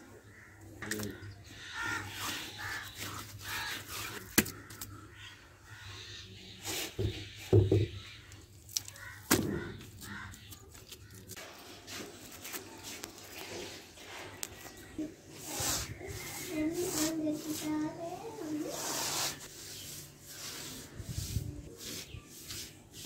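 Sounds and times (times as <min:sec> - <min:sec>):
mud slaps: 0:04.2 - 0:04.9, 0:08.7 - 0:11.3.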